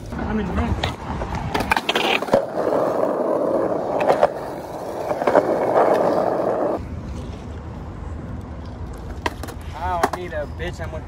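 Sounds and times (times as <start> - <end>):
skateboard wheels clacking over cracks: 0.0 - 6.8, 8.6 - 10.3
skateboard wheels rolling on concrete: 0.0 - 11.0.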